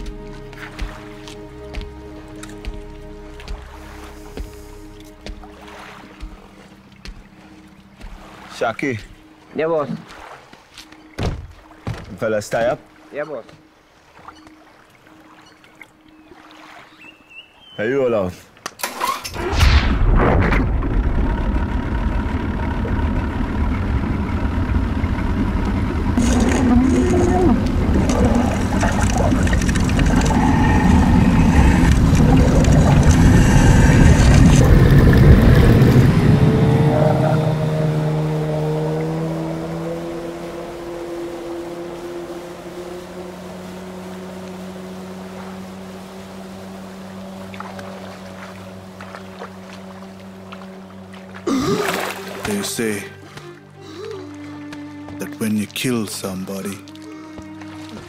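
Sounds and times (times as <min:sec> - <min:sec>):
outboard motor droning: 0:00.0 - 0:18.2, 0:20.6 - 0:58.0
water wash: 0:18.8 - 0:55.0
muffled underwater rumble: 0:19.9 - 0:37.2
body splashing into water: 0:47.3 - 0:52.8.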